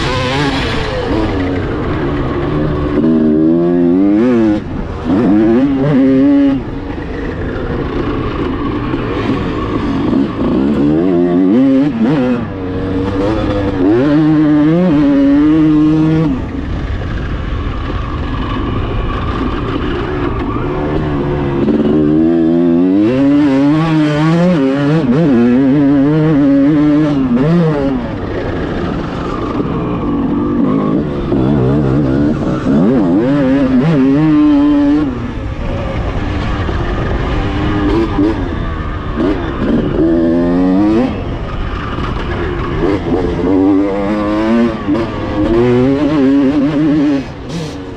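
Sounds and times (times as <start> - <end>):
motorcycle engine revving: 0.0 - 47.9.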